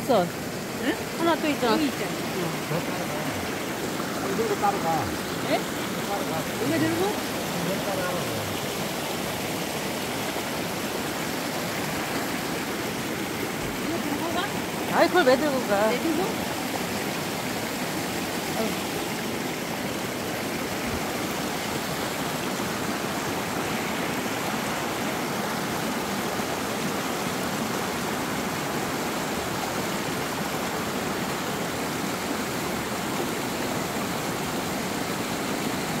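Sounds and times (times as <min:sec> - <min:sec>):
stream running over rocks: 0:00.0 - 0:36.0.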